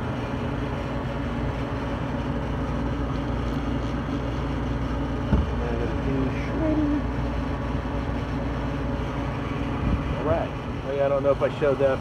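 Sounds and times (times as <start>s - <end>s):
condensing unit hum and whir: 0.0s - 12.0s.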